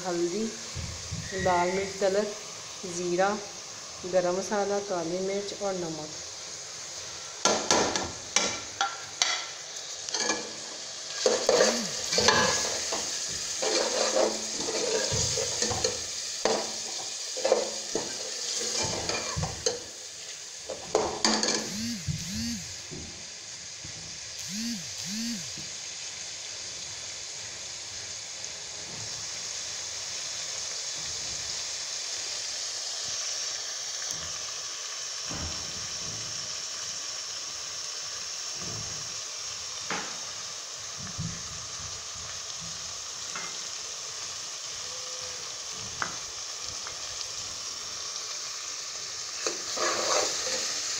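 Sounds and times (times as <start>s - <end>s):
meat sizzling: 0.0s - 50.9s
spoon scraping a steel pot: 11.2s - 12.9s, 13.6s - 16.0s, 49.7s - 50.7s.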